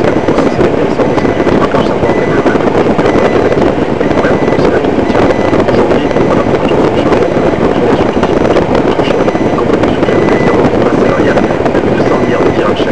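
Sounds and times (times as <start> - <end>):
car engine: 0.0 - 12.9
road noise: 0.0 - 12.9.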